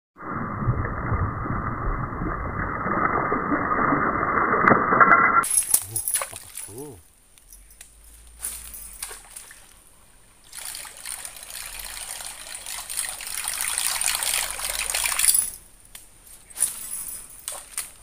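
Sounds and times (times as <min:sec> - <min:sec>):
lure splashing across water: 0:05.4 - 0:07.0.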